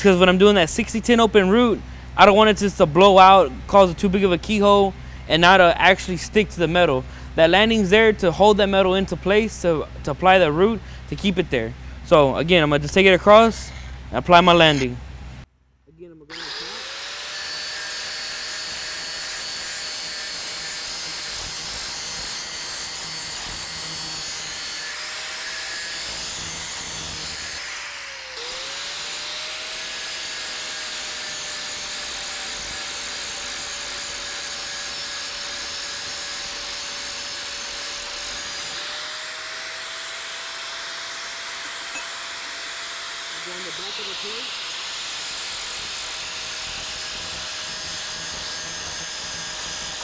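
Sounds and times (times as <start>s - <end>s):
angle grinder grinding steel: 16.3s - 50.0s.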